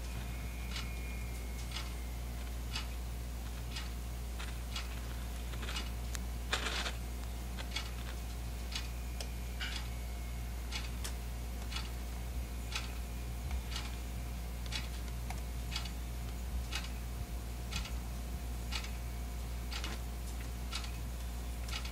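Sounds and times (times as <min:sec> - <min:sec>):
faint regular ticking: 0:00.0 - 0:10.0, 0:10.6 - 0:21.9
steady low hum: 0:00.0 - 0:21.9
scratchy rustle: 0:06.5 - 0:07.0.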